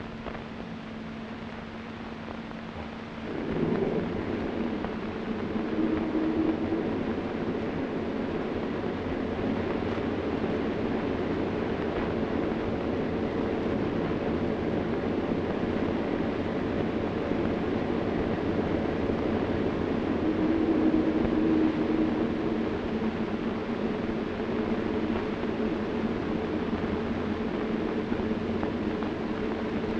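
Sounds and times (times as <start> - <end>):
wind: 0.0 - 29.9
water noise: 2.7 - 10.9, 17.1 - 26.6.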